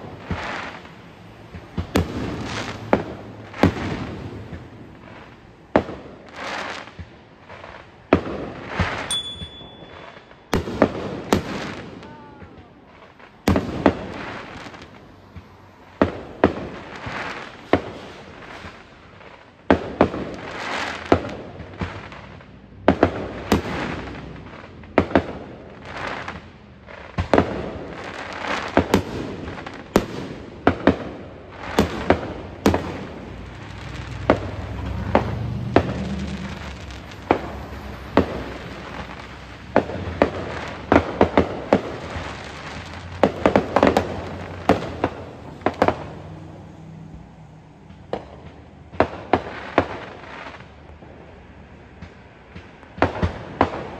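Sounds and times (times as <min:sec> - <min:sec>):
fireworks bangs: 0:00.0 - 0:53.9
echoing rumble: 0:31.9 - 0:46.4.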